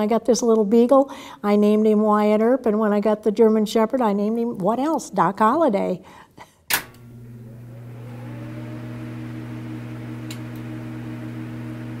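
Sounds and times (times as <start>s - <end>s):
faint click: 10.2s - 10.7s.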